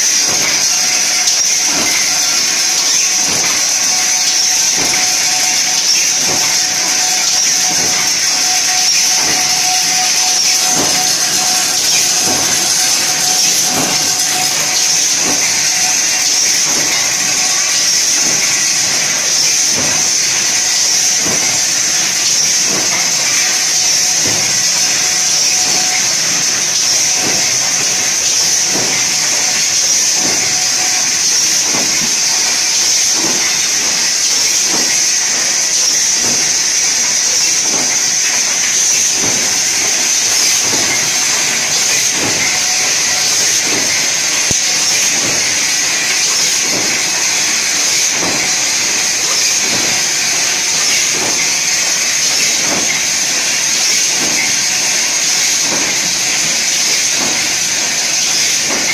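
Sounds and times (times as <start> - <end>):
packing machine hiss: 0.0 - 58.9
regular mechanical knocking: 0.0 - 58.9.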